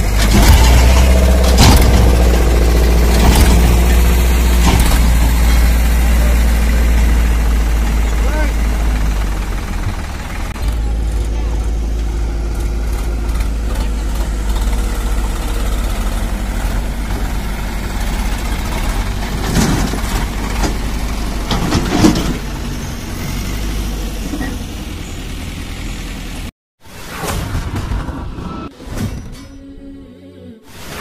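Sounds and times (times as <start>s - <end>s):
sharp engine knocks: 0.0s - 11.3s
diesel engine idling: 0.0s - 26.5s
thud: 0.2s - 2.5s.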